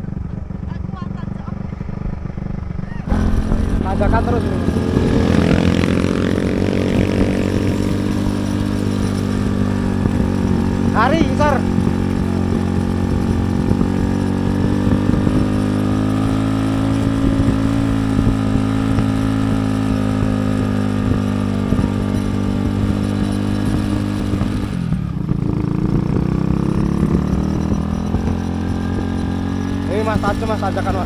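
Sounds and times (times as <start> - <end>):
motorcycle engine under load: 0.0 - 31.0.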